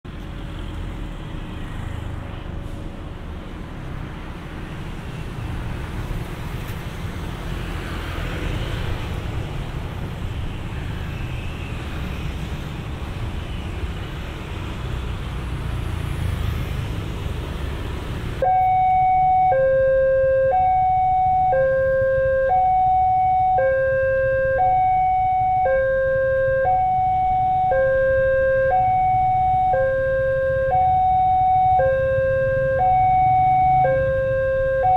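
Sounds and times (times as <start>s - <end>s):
road and vehicle rumble: 0.0s - 34.9s
two-tone electronic warning signal: 18.4s - 34.9s.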